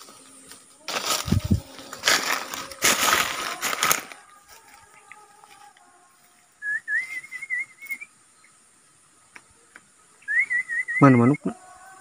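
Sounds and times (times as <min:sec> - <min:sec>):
loud rustle: 0:00.8 - 0:04.2
person whistling a call: 0:06.6 - 0:08.1, 0:10.3 - 0:11.4.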